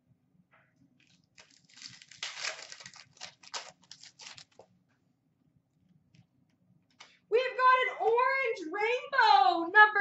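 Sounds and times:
card wrapper crinkling: 1.0s - 4.7s.

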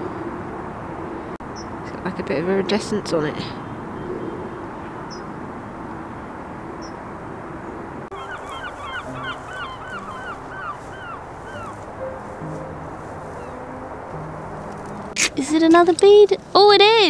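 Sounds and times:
bird calling: 8.1s - 13.7s.

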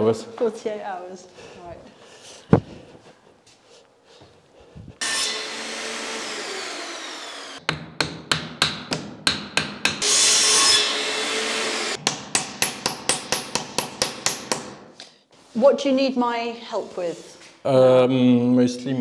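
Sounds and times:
power saw cutting wood: 5.0s - 7.6s, 10.0s - 12.0s
hammer driving nails: 7.6s - 10.7s, 12.0s - 15.0s.

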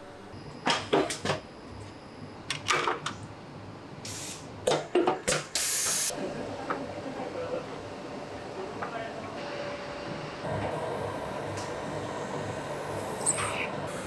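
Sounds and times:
air hiss: 4.0s - 4.5s, 5.6s - 6.1s.

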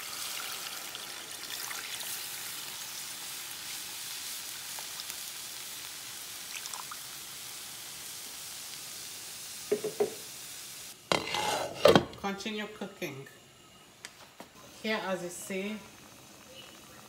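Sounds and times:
water pouring into a pot: 0.0s - 7.7s.

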